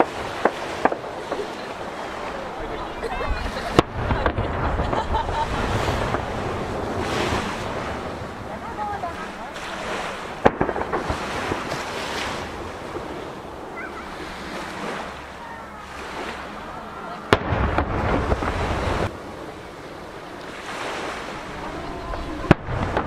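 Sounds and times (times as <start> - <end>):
waves washing against a jetty: 0.0 - 23.0
wind on microphone: 0.0 - 23.0
firework bang: 3.7 - 8.1, 10.4 - 13.2, 17.3 - 19.1, 22.4 - 23.0.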